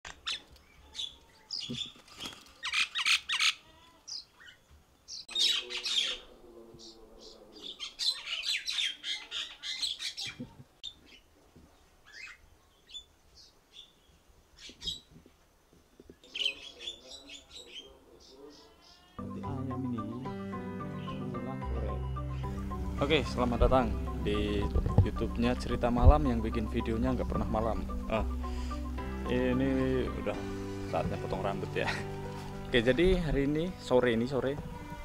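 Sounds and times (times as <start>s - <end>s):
birds squawking and chattering: 0.1s - 11.3s, 12.0s - 13.1s, 16.2s - 19.3s, 20.1s - 21.4s.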